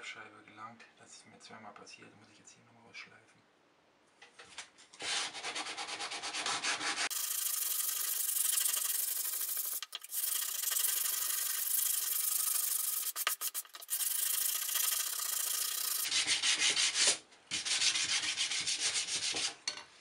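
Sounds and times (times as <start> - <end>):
sandpaper rasping on wood: 5.0 - 19.5.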